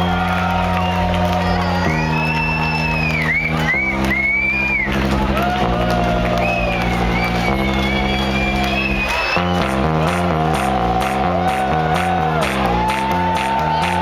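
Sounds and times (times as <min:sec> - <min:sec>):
sustained synth chords: 0:00.0 - 0:14.0.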